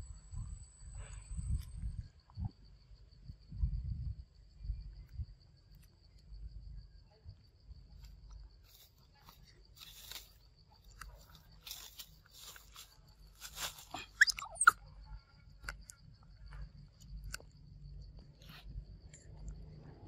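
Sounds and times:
faint insect ticking: 0.0 - 20.0
monkey squeaks: 14.0 - 14.8.

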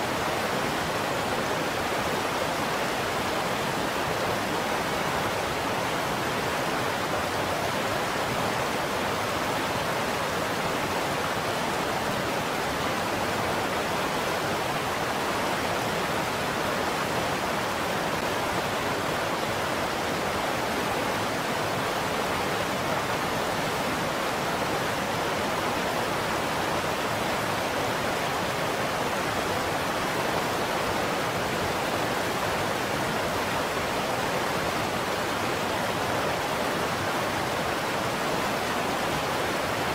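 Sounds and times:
river water rushing over rocks: 0.0 - 39.9.

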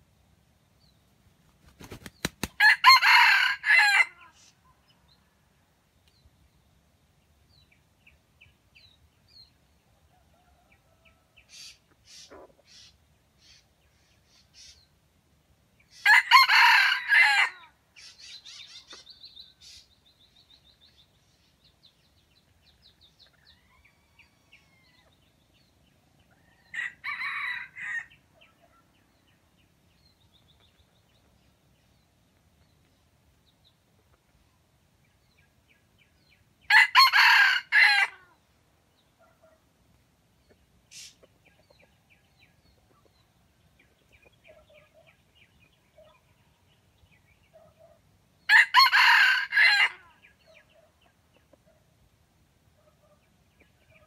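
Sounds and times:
rooster crowing: 2.6 - 4.4, 16.0 - 17.7, 26.6 - 28.2, 36.7 - 38.3, 48.5 - 50.1
faint bird chirps: 10.1 - 15.0, 18.0 - 25.5.

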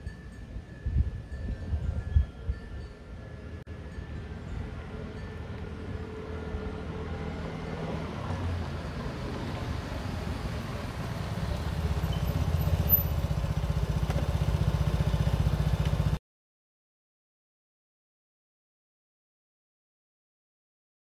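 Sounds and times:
scooter engine idling: 8.7 - 16.2.

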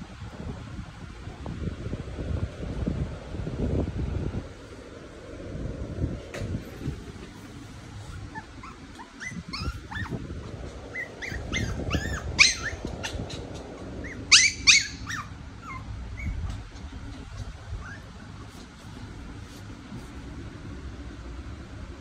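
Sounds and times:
puppy yipping and whining: 7.9 - 18.7.

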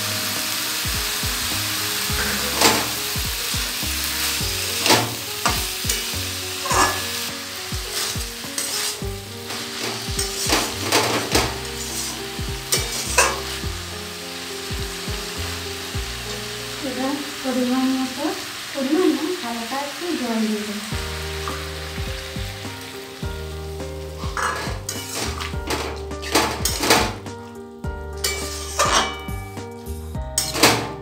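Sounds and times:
food sizzling in oil: 0.0 - 31.0
metal spatula scraping a pan: 2.0 - 3.2, 4.2 - 13.6, 24.1 - 26.9, 28.2 - 29.4, 30.4 - 31.0.

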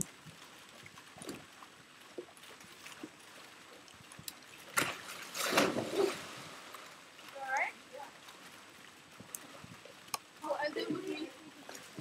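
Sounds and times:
pool water lapping: 0.0 - 12.0
surfboard slap and splash: 4.7 - 6.8.

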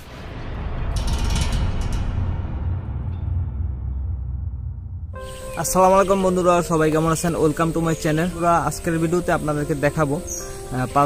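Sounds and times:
intro music sting: 0.0 - 9.1.

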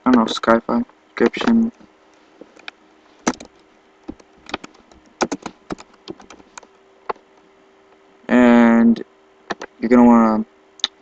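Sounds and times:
keyboard typing clicks: 2.6 - 7.2, 9.5 - 9.7.

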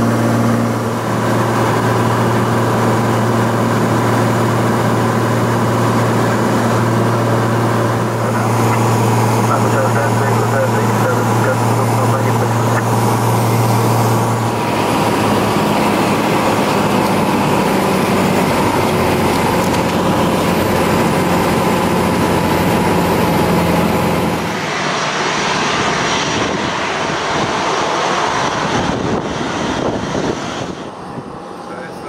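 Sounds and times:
jet airliner taxiing: 0.0 - 32.0
propeller plane engine drone: 0.0 - 32.0.

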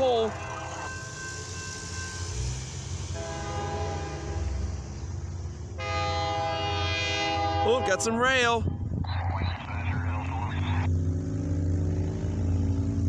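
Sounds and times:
low rumble of locomotives: 0.0 - 13.0
locomotive air horn: 3.0 - 4.9, 5.8 - 8.2.

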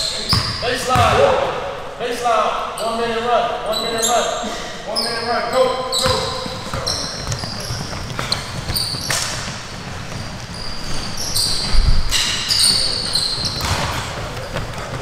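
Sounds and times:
sneaker squeaks: 0.0 - 1.2, 3.7 - 15.0
basketballs bouncing on hardwood: 0.3 - 1.4, 6.0 - 10.6, 13.4 - 15.0.

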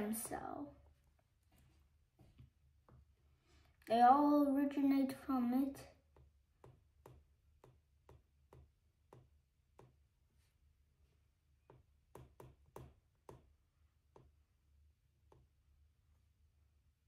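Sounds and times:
stylus tapping on glass screen: 11.7 - 13.5.

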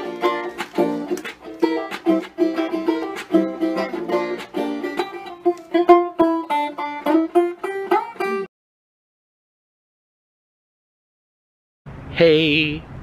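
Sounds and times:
plucked string instrument music: 0.0 - 8.5.

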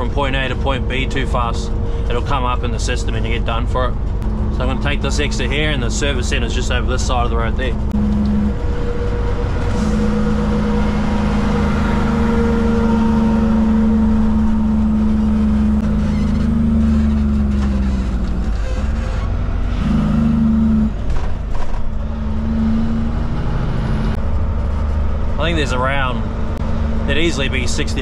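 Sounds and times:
diesel truck engine running: 0.0 - 28.0.

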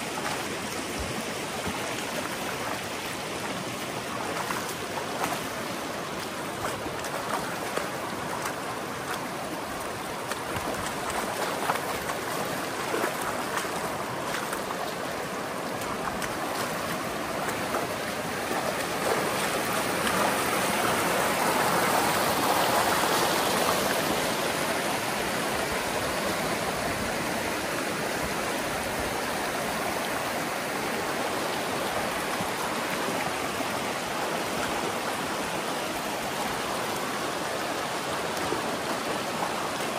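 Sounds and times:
river water flowing: 0.0 - 39.9.

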